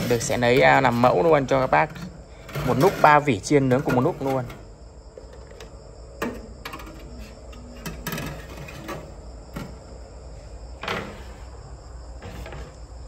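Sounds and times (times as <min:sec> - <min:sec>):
metal racks clinking against rails: 0:00.0 - 0:04.7, 0:05.4 - 0:09.8.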